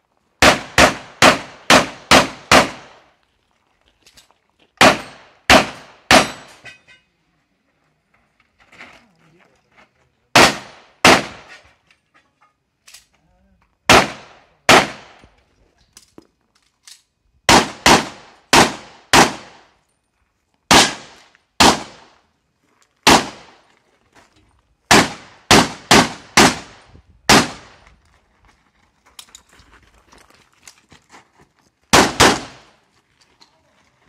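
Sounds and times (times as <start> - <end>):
pistol shots: 0.4 - 3.0, 4.8 - 6.6, 10.3 - 11.6, 13.9 - 15.3, 17.5 - 19.7, 20.7 - 22.1, 23.0 - 23.6, 24.9 - 27.8, 31.9 - 32.7
faint scuffs and rattles: 27.8 - 31.9.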